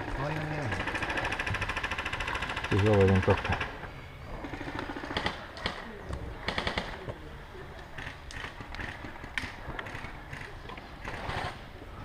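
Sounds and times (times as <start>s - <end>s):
airsoft rifles firing: 4.4s - 7.1s.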